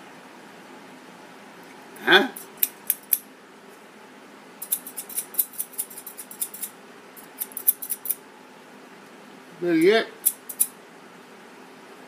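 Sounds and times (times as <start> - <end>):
scissors snipping: 2.4 - 3.2, 4.6 - 8.2, 10.2 - 10.7.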